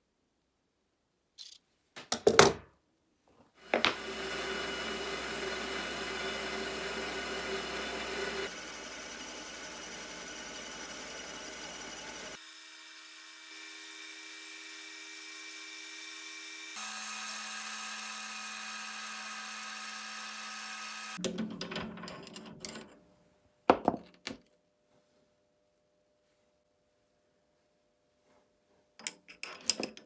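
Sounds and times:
metal lathe running: 3.7s - 12.4s, 16.5s - 21.2s
metal rod clattering and knocking: 21.2s - 23.0s, 29.0s - 30.0s.

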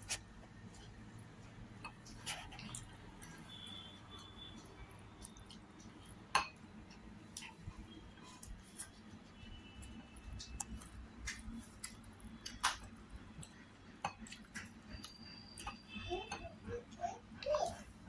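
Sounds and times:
chewing clicks and smacks: 1.8s - 7.8s, 10.1s - 15.9s.

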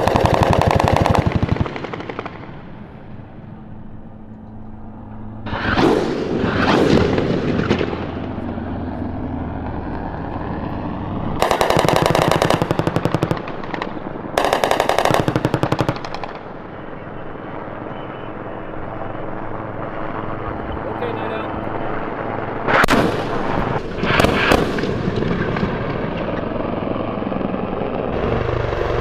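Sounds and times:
rotary cannon firing rapid bursts: 0.0s - 2.6s, 11.4s - 16.6s, 22.7s - 25.7s
steady low rumble: 0.0s - 29.0s.

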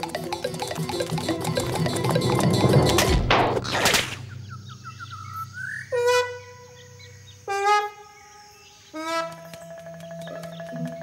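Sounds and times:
trumpet-like notes: 5.9s - 8.2s, 8.9s - 10.0s.

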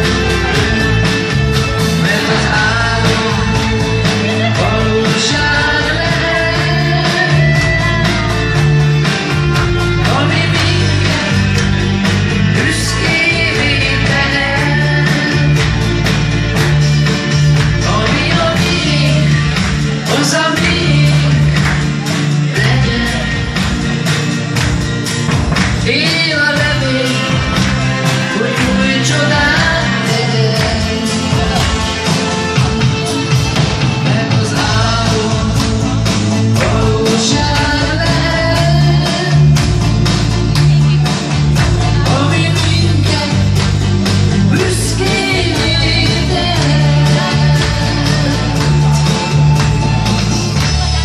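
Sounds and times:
bass guitar: 0.0s - 51.0s
electric guitar: 0.0s - 51.0s
steady drum beat: 0.0s - 51.0s
man singing into microphone: 1.8s - 8.3s, 9.8s - 11.7s, 12.5s - 15.7s, 17.8s - 23.6s, 25.8s - 32.5s, 33.7s - 39.6s, 41.9s - 49.5s.

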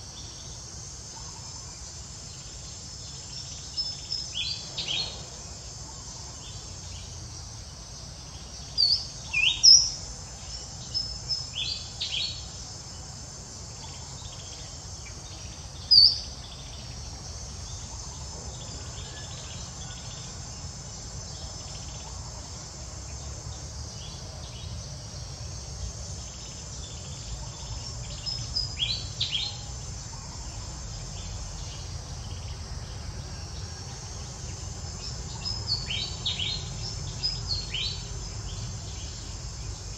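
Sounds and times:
crickets and insects trilling: 0.0s - 39.9s.

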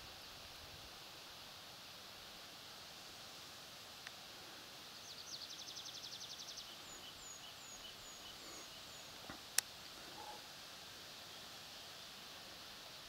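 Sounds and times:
songbird singing: 4.8s - 10.5s.

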